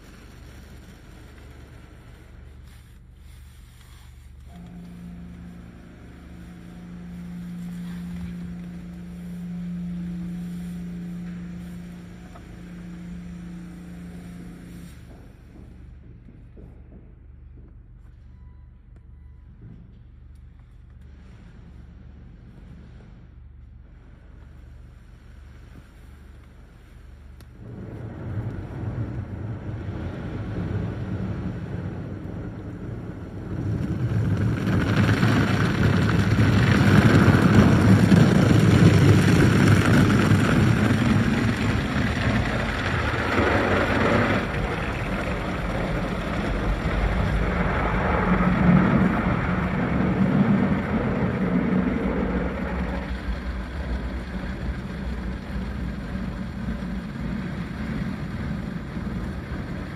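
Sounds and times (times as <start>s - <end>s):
water spray on car: 0.0s - 15.5s, 25.0s - 59.9s
rotating cloth brushes: 0.0s - 15.6s.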